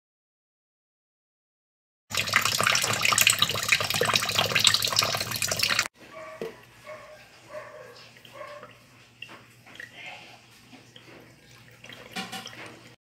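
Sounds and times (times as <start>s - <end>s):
tap water running into a tub: 2.1s - 5.9s, 10.6s - 13.0s.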